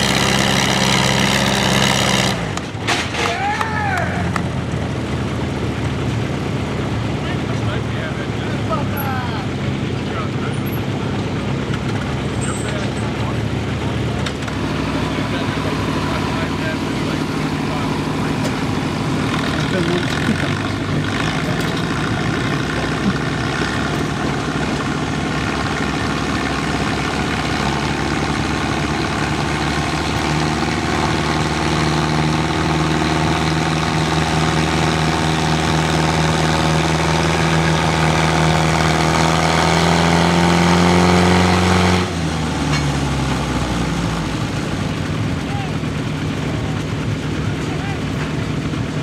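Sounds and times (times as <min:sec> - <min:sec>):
tractor engine working under load: 0:00.0 - 0:49.0.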